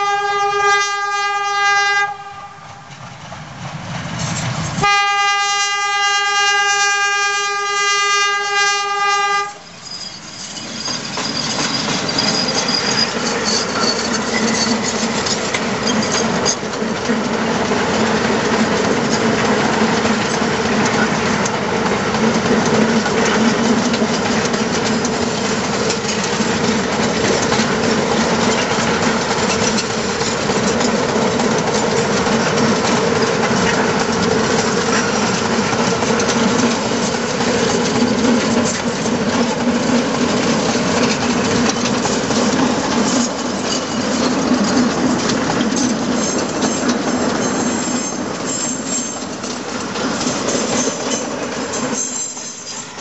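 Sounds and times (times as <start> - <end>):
locomotive horn blasts: 0.0 - 2.8, 4.8 - 9.6
train rumbling past: 0.0 - 53.0
train wheels clacking: 2.6 - 5.1, 9.5 - 53.0.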